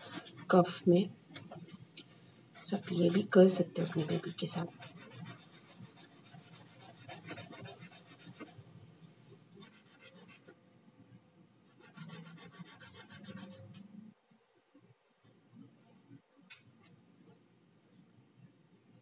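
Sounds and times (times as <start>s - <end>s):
clove scraping on rubbing plate: 2.6s - 8.6s.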